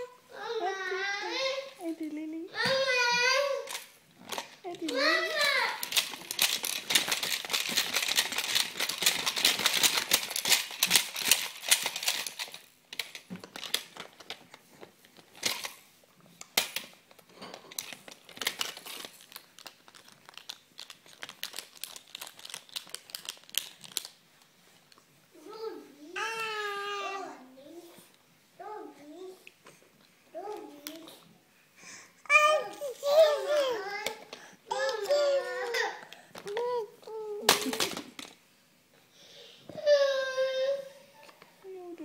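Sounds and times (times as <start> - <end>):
plastic toys crinkling and clattering: 1.3 - 27.3, 30.4 - 31.3, 32.3 - 38.4.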